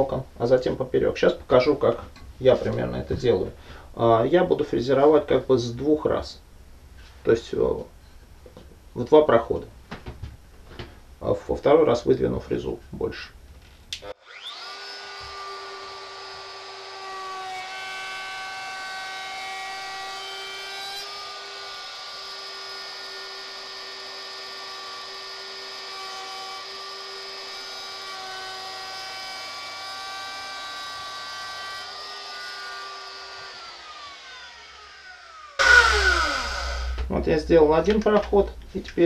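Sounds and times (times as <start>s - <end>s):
router whining: 14.1s - 37.1s.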